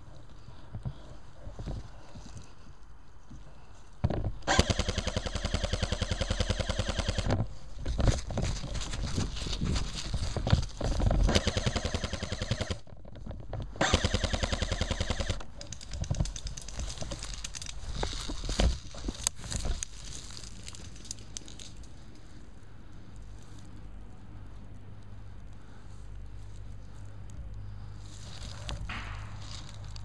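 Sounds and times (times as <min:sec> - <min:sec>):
rustling of brush: 0:00.0 - 0:13.8, 0:14.6 - 0:30.0
airsoft rifle full-auto bursts: 0:04.5 - 0:07.3, 0:11.3 - 0:12.8, 0:13.8 - 0:15.4.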